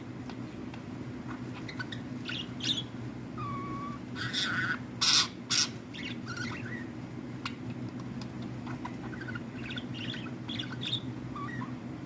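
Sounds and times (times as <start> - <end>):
steady low hum: 0.0 - 12.0
budgerigar chattering: 1.6 - 6.9.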